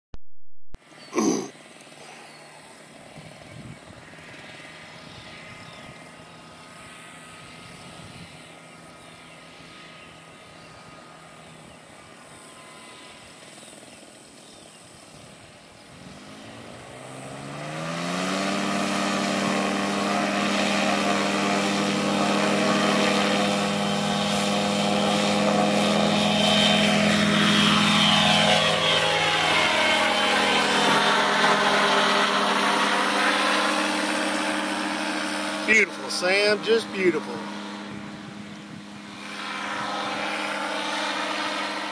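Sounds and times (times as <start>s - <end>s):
paramotor engine and propeller drone: 0.8s - 41.9s.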